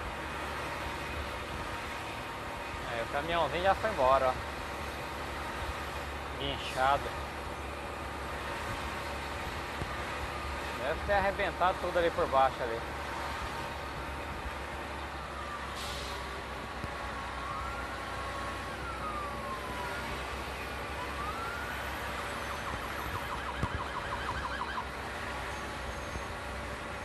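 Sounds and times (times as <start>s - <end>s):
truck engine drone: 0.0s - 27.0s
police siren wailing: 15.1s - 25.1s.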